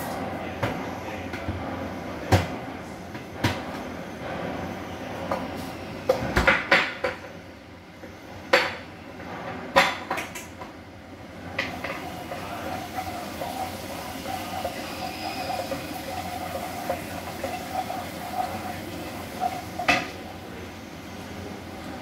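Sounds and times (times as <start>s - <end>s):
vegetables sizzling in oil: 11.7s - 20.2s.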